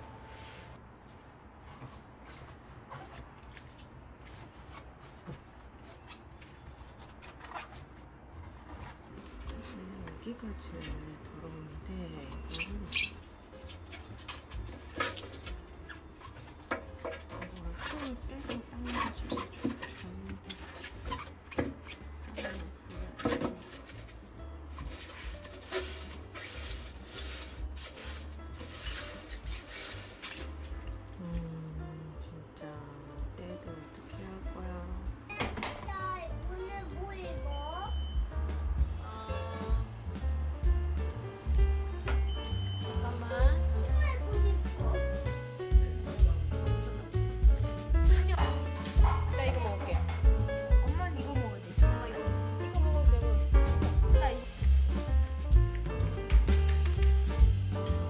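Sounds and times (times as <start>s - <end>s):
soft background music: 0.0s - 2.2s, 4.4s - 58.0s
cloth rubbing inside steel drum: 0.0s - 3.3s, 6.9s - 30.8s, 46.0s - 58.0s
short squeaks: 12.4s - 14.0s.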